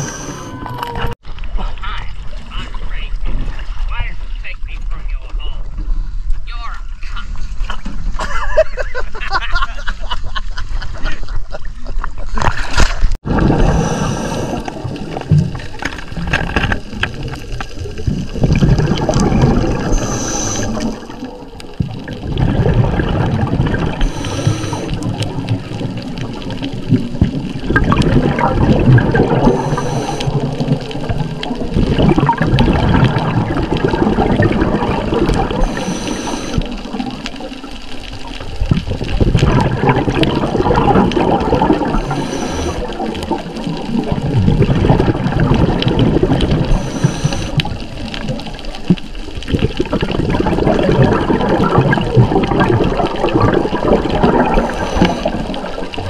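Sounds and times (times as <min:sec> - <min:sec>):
regulator inhalation hiss: 0:00.0 - 0:00.6, 0:13.6 - 0:14.7, 0:19.9 - 0:21.0, 0:24.0 - 0:25.0, 0:29.5 - 0:30.4, 0:35.6 - 0:36.8, 0:41.9 - 0:43.0, 0:46.7 - 0:47.7, 0:54.6 - 0:55.6
exhaled bubbles gurgling: 0:00.0 - 0:03.9, 0:12.1 - 0:56.0.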